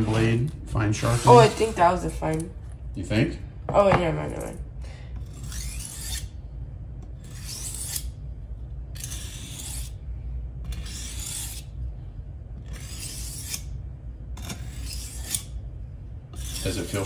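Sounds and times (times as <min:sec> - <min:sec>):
knife scraping on sharpening stone: 0:05.2 - 0:06.3, 0:07.2 - 0:08.2, 0:09.0 - 0:10.0, 0:10.7 - 0:11.7, 0:12.6 - 0:13.7, 0:14.4 - 0:15.6, 0:16.3 - 0:17.0.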